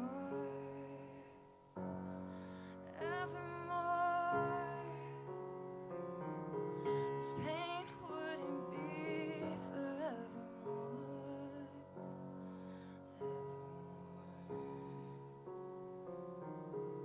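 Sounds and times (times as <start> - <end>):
woman singing: 0.0 - 1.3, 2.7 - 5.4, 6.8 - 12.2, 13.0 - 15.2
piano chords: 0.0 - 17.0.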